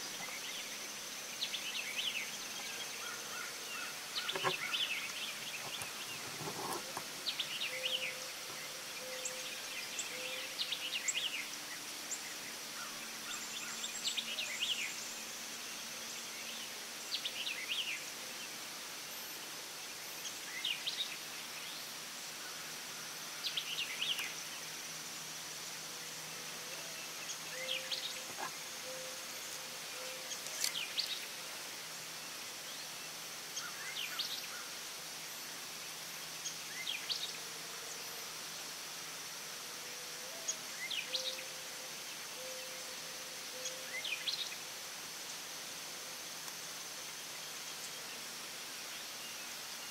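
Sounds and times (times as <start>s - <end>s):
bird chirping: 0.0s - 15.1s, 26.7s - 31.4s.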